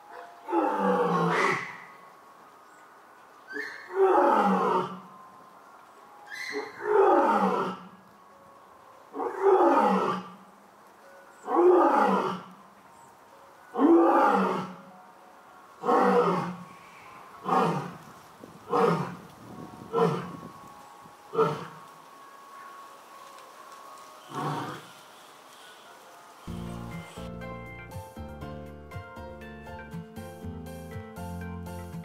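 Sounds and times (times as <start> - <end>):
lion roaring: 0.4 - 1.8, 3.6 - 5.0, 6.5 - 7.9, 9.1 - 10.4, 11.4 - 12.5, 13.8 - 14.8, 15.8 - 16.6, 17.4 - 18.0, 18.7 - 19.2, 24.3 - 24.9.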